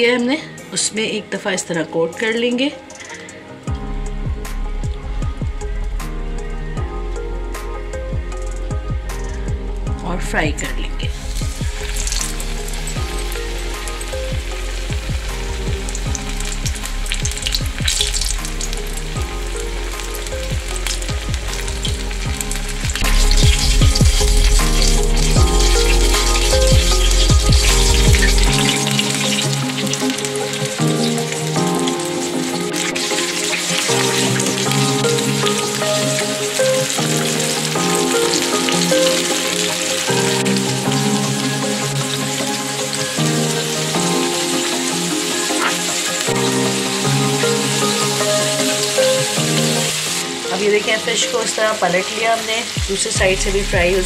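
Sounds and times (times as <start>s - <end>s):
music of sustained chords: 0.0s - 54.0s
fish frying in hot oil: 11.1s - 54.0s.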